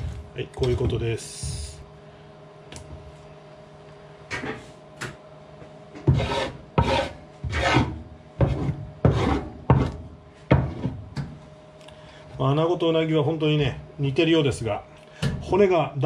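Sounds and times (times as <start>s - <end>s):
knife scraping wooden board: 6.1s - 10.0s.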